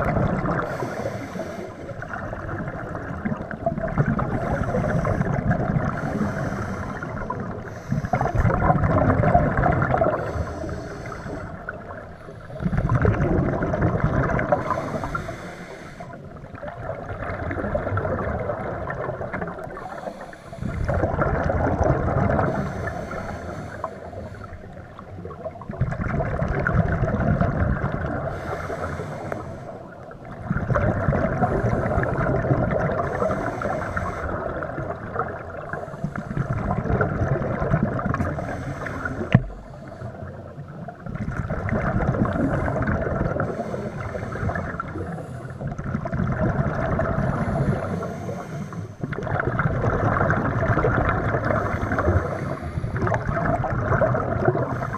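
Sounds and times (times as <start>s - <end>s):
regulator breathing underwater: 0.0s - 2.3s, 4.2s - 8.8s, 9.6s - 16.4s, 19.4s - 25.1s, 28.2s - 30.0s, 31.0s - 36.8s, 38.0s - 40.8s, 42.1s - 45.9s, 46.9s - 49.3s, 51.2s - 54.9s
bubbling exhalations: 2.0s - 11.8s, 12.5s - 15.3s, 20.6s - 22.9s, 41.0s - 48.0s, 49.1s - 54.9s.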